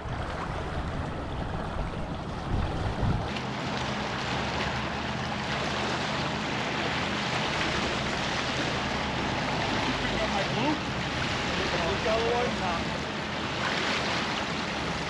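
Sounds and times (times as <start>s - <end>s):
wind on microphone: 0.0s - 3.3s
water lapping against rocky shore: 0.0s - 15.0s.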